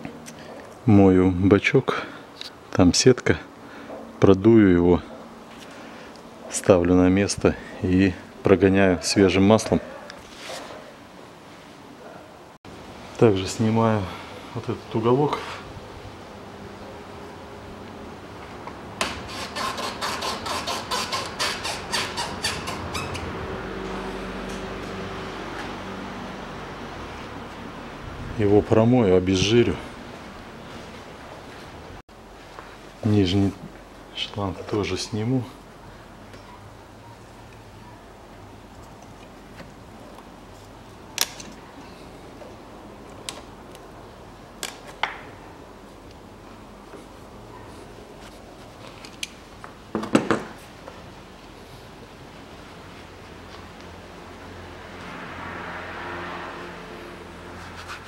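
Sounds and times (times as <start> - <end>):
rubber hose squeaks and clicks: 19.0 - 23.4.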